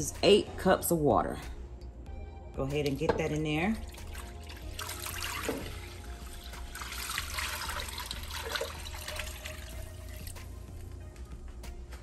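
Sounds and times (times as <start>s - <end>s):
water pouring into liquid: 3.8s - 10.4s.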